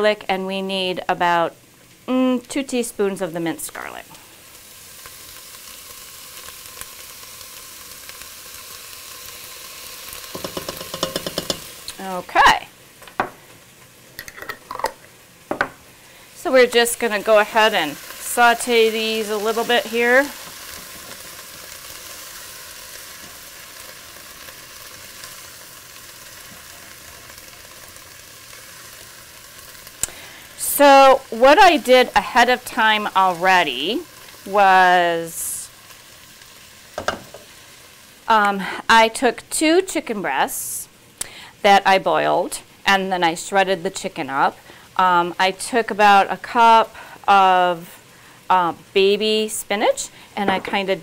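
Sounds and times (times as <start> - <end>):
vegetables sizzling in hot oil: 0.0 - 51.0
spatula stirring: 10.3 - 11.8.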